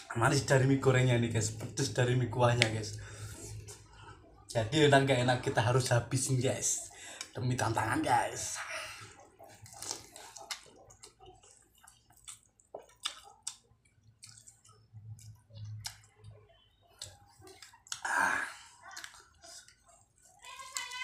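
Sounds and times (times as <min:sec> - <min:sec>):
slurping and chewing noodles: 0:08.9 - 0:21.0.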